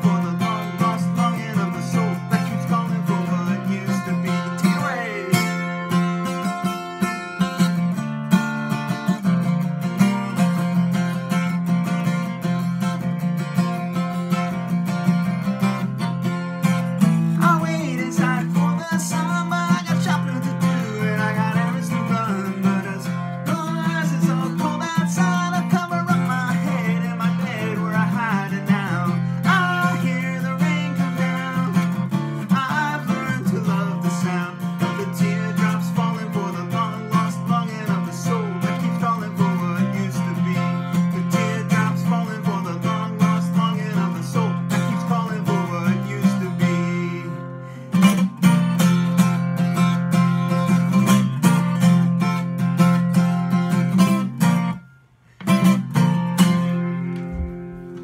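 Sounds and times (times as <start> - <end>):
man singing: 0.0 - 7.7, 16.6 - 54.6
acoustic guitar strumming: 0.0 - 58.0.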